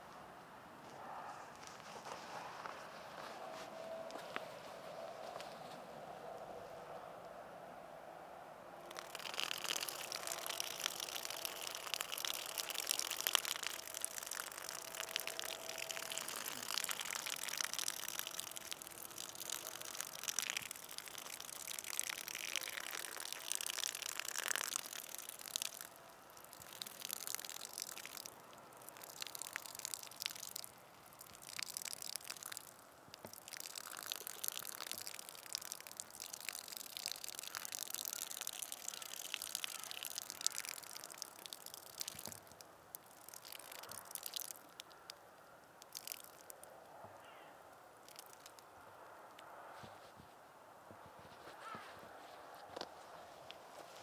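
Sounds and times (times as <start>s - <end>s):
person urinating: 8.9s - 45.2s, 45.8s - 46.6s, 48.0s - 48.6s.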